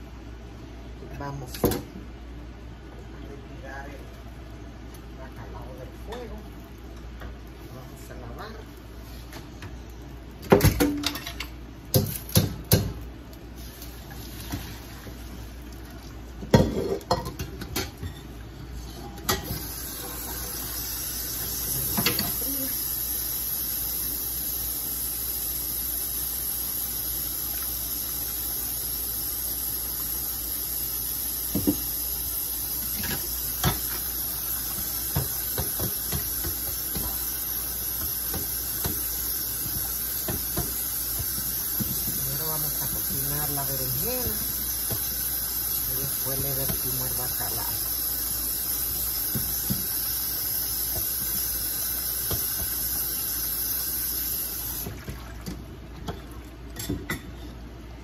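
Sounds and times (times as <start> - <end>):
metal pots and utensils clanking: 16.5 - 18.3, 18.9 - 19.7
steady hiss: 19.4 - 54.8.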